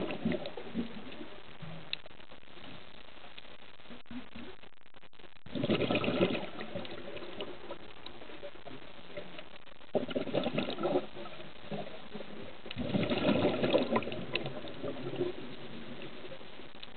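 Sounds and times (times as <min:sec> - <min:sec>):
diver's bubbles gurgling: 0:00.0 - 0:01.9, 0:05.4 - 0:07.9, 0:09.1 - 0:16.9
faint steady hiss: 0:00.0 - 0:16.9.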